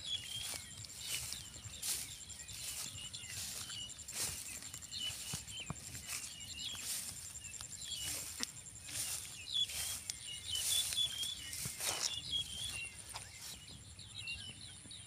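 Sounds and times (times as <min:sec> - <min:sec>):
insect trill: 0:00.0 - 0:13.3
rice stalks swishing: 0:00.0 - 0:13.6
birds chirping: 0:00.0 - 0:15.0.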